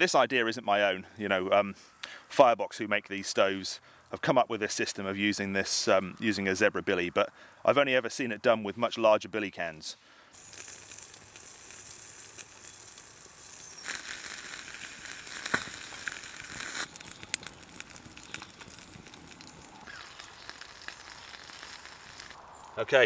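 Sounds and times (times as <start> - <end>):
wood fire crackling and popping: 9.6 - 22.8.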